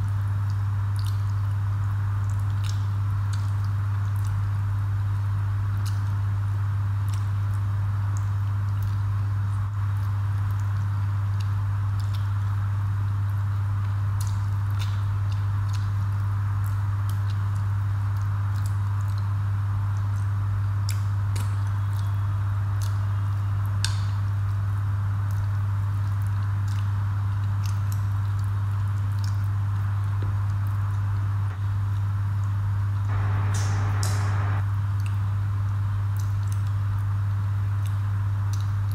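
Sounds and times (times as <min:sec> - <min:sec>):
steady low hum: 0:33.1 - 0:34.8.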